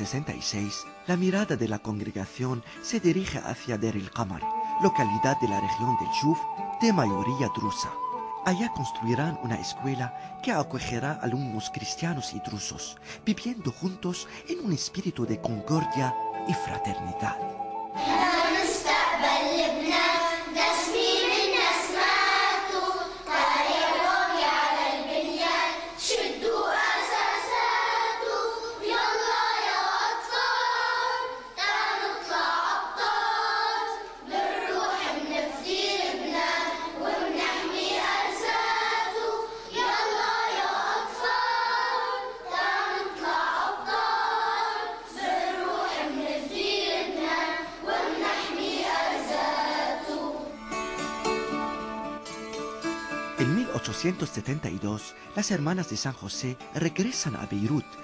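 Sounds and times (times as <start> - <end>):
children's choir singing: 16.7 - 50.8.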